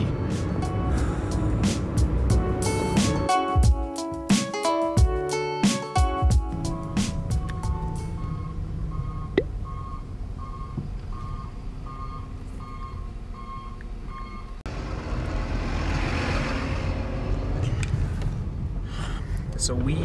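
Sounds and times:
low engine rumble: 0.0 - 3.7, 6.4 - 20.0
backup alarm beeping: 7.6 - 14.6.

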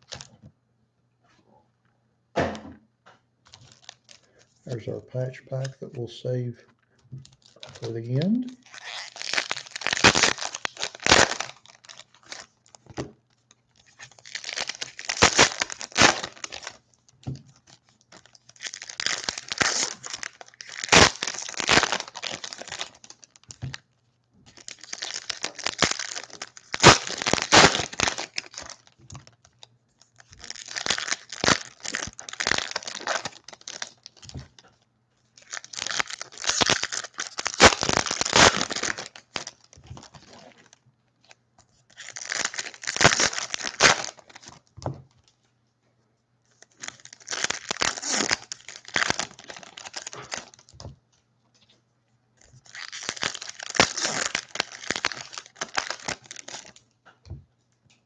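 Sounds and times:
foil wrappers tearing and crinkling: 3.5 - 4.8, 7.3 - 23.8, 24.5 - 34.8, 35.4 - 44.7, 46.5 - 50.9, 52.5 - 56.8.

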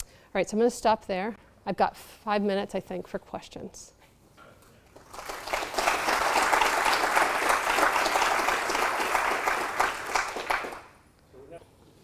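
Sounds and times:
audience applauding: 4.9 - 11.0.

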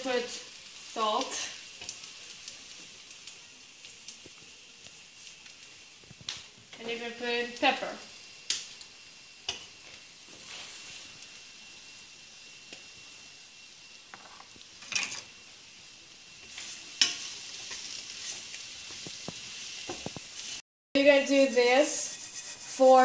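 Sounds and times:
bread frying in oil: 0.0 - 23.0
spatula scraping a pan: 16.4 - 23.0.

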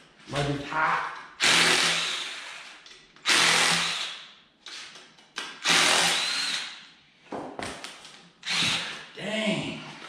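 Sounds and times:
cordless drill spinning bolts: 5.6 - 6.8, 8.4 - 8.9.

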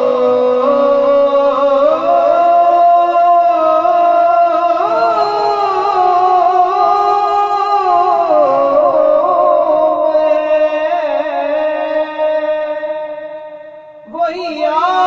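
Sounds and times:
man singing through pa: 0.0 - 15.0.

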